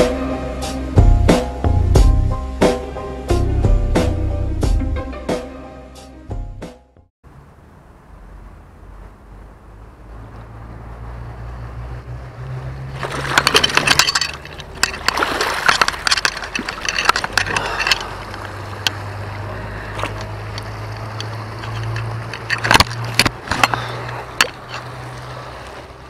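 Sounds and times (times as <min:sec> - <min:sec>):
river water splashing: 0:07.3 - 0:26.0
small knocks and clicks: 0:20.0 - 0:24.8.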